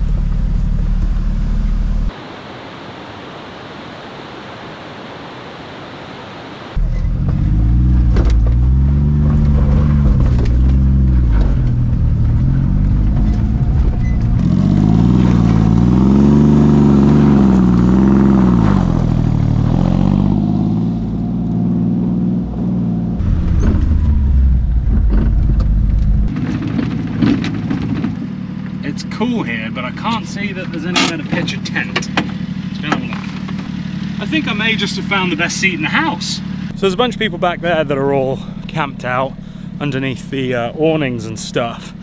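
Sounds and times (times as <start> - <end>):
engine heard from inside cab: 0.0 - 2.2, 6.8 - 16.0, 20.9 - 42.0
small truck engine revving: 6.8 - 41.0.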